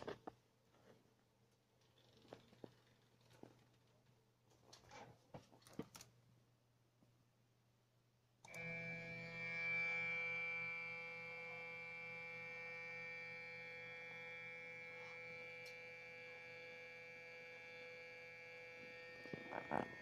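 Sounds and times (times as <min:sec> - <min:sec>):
stepper motor whine: 0:08.5 - 0:20.0.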